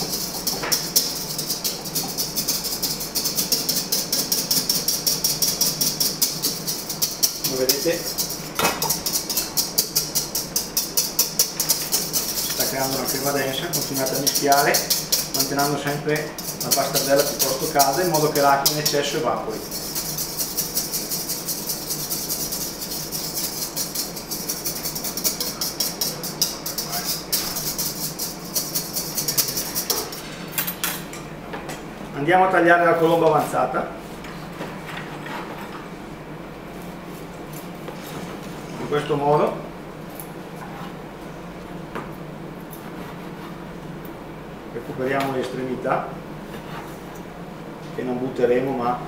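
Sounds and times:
whisk scraping metal bowl: 0.0s - 30.4s.

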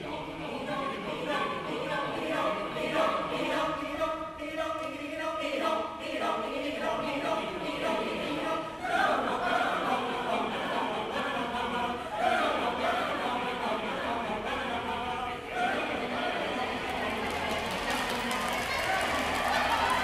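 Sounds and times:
mixed choir singing a cappella: 0.0s - 20.0s.

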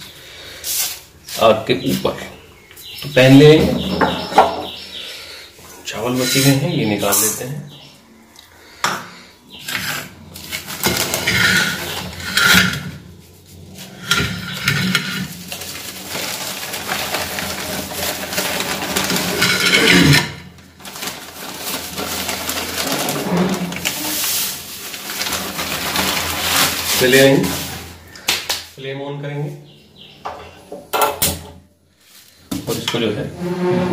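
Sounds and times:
newspaper rustling: 14.6s - 28.2s.

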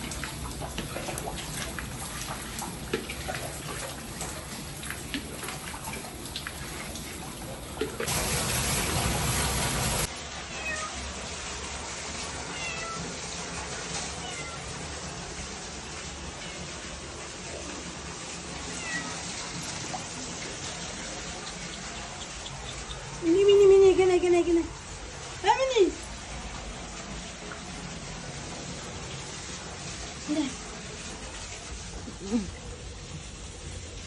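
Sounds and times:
water dripping on tiled floor: 0.0s - 8.4s, 12.1s - 34.0s
rush of water thrown out: 7.8s - 10.8s.

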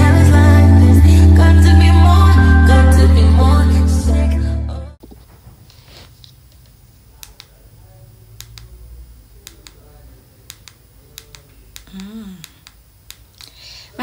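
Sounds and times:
low steady hum: 0.0s - 14.0s
sharp clicks: 7.2s - 7.6s, 8.4s - 8.8s, 9.4s - 13.6s.

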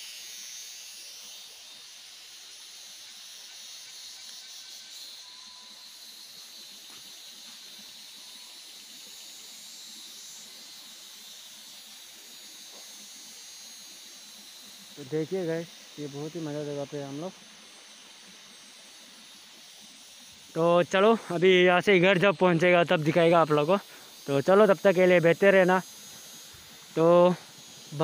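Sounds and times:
faint outdoor hiss: 0.0s - 28.0s.

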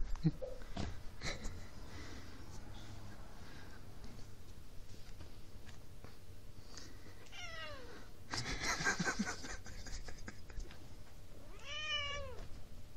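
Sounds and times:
cat meowing: 7.2s - 8.0s, 11.4s - 12.4s
rough noisy cat sound: 11.3s - 12.6s.

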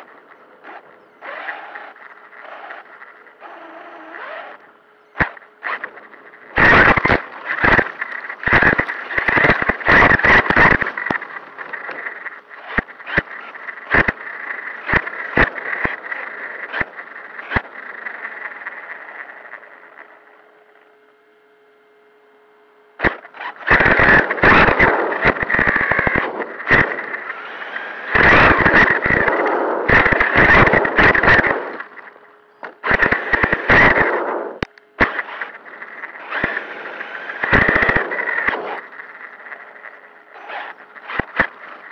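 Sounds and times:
toy truck drivetrain whine: 0.0s - 21.8s, 22.9s - 41.9s
chassis and tyres rattling: 1.3s - 18.7s.

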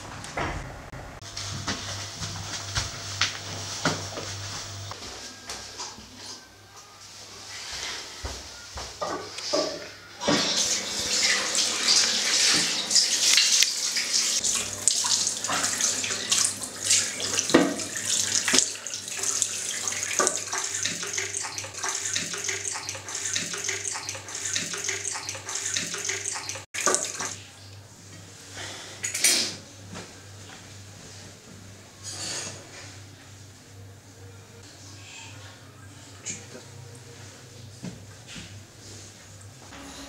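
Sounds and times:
tap water running into sink: 10.3s - 27.4s
water splashes: 11.2s - 27.4s.

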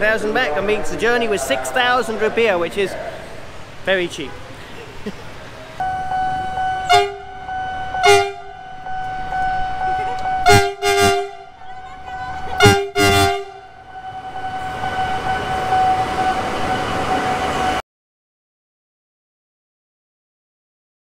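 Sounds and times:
train rumbling past: 0.0s - 17.8s
steady tone: 5.6s - 17.8s
locomotive horn toots: 5.7s - 17.8s.

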